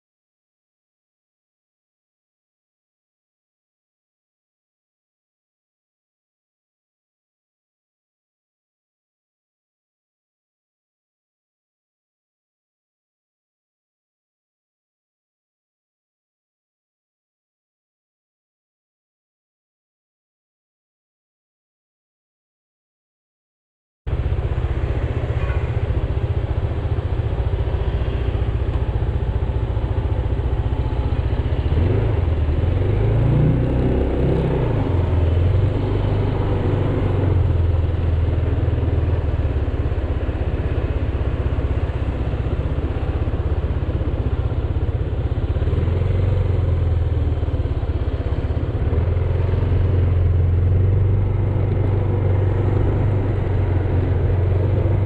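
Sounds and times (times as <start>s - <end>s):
road and wind noise: 24.1s - 55.0s
scooter engine running: 24.1s - 55.0s.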